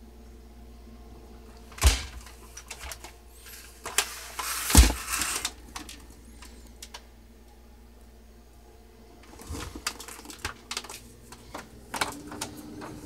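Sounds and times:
plastic projector handling noise: 0:01.6 - 0:07.0, 0:09.2 - 0:13.0.

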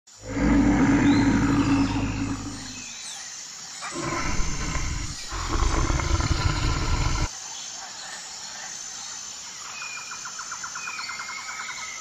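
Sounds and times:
tiger growling and roaring: 0:00.1 - 0:02.9, 0:03.8 - 0:07.3.

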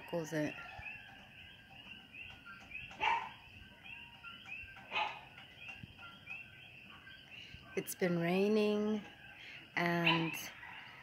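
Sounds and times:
frogs calling: 0:00.0 - 0:11.0
dog barking: 0:03.0 - 0:03.4, 0:04.9 - 0:05.3.

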